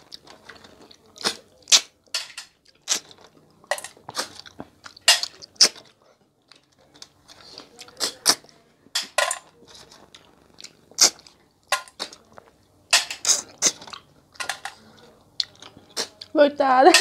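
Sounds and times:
slurping snails from shells: 0:09.5 - 0:16.3.

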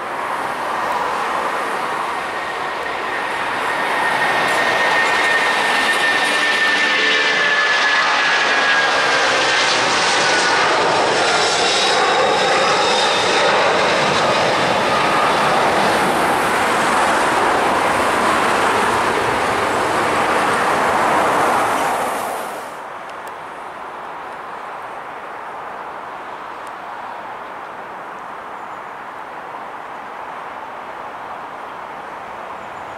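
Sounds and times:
jet engine roar: 0:00.0 - 0:23.6
faint jet whine: 0:00.0 - 0:32.9.

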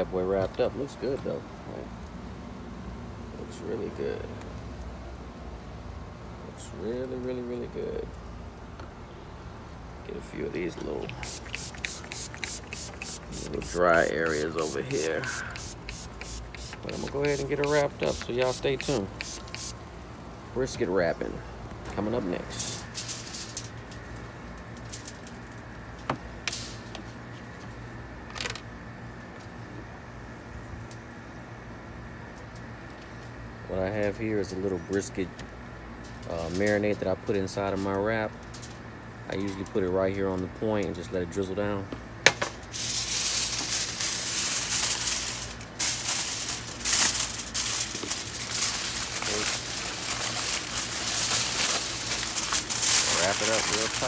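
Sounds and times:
steady low hum: 0:00.0 - 0:39.3
foil crinkling: 0:10.7 - 0:19.8, 0:42.6 - 0:54.0.

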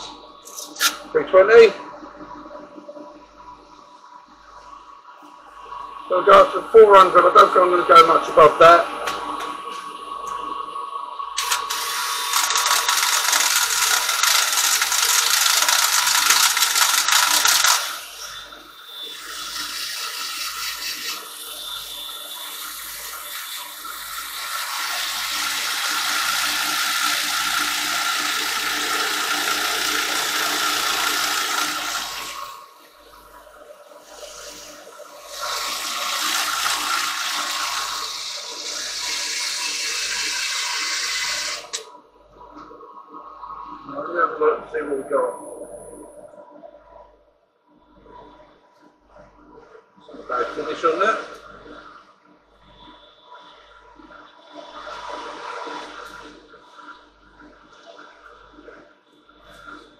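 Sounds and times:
drill power-sanding wooden bowl: 0:11.4 - 0:32.6, 0:34.1 - 0:41.8.

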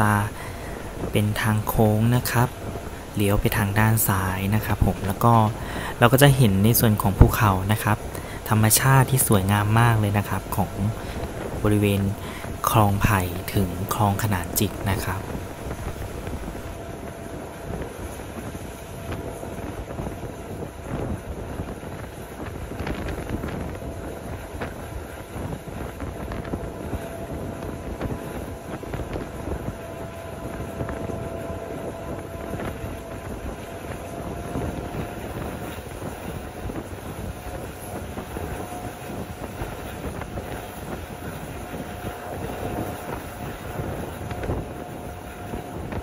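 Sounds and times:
thin steady whine: 0:00.0 - 0:46.0
train rumble: 0:00.0 - 0:46.0
wind on microphone: 0:00.0 - 0:46.0.

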